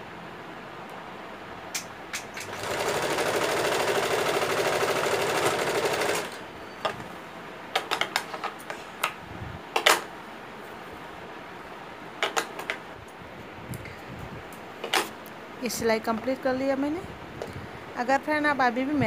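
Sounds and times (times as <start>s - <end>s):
electric sewing machine running: 2.4s - 6.5s
sharp clicks and knocks: 7.7s - 9.2s, 12.2s - 12.8s.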